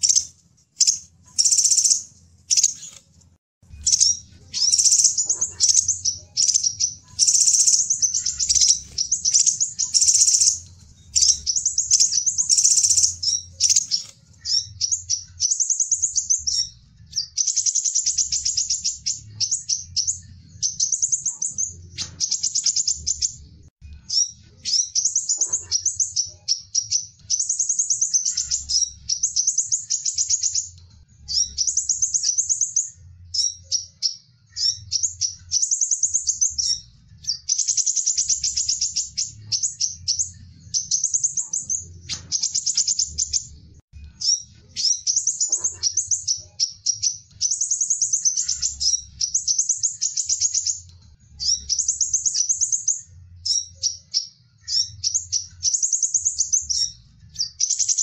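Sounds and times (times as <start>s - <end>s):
bird chittering calls: 0.0s - 3.0s, 3.7s - 23.4s, 24.1s - 30.7s, 44.2s - 58.0s.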